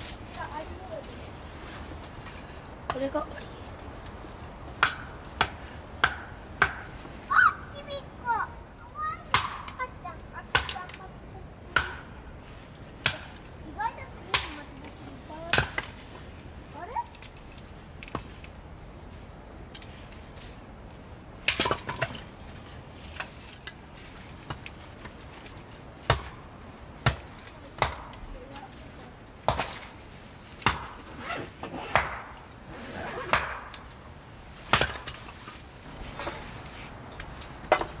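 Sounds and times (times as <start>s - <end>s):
hatchet chopping wood: 4.8s - 7.0s, 9.3s - 9.8s, 10.5s - 11.0s, 11.7s - 12.2s, 13.0s - 13.4s, 14.3s - 14.5s, 15.5s - 16.0s, 21.4s - 22.2s, 26.0s - 26.4s, 27.0s - 28.2s, 29.4s - 29.9s, 30.6s - 31.1s, 31.8s - 32.4s, 33.2s - 33.9s, 34.7s - 35.6s, 37.2s - 38.0s.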